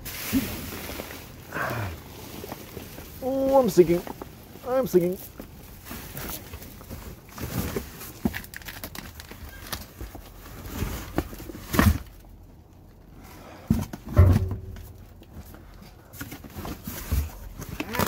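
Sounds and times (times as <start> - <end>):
cardboard scraping and crackling: 2.1 - 12.3.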